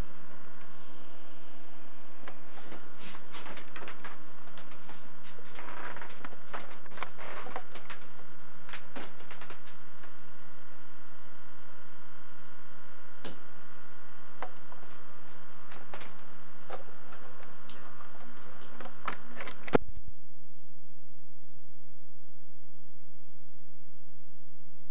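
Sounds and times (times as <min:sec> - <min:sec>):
faint steady tone: 0:00.0 - 0:24.9
steady hum: 0:00.0 - 0:24.9.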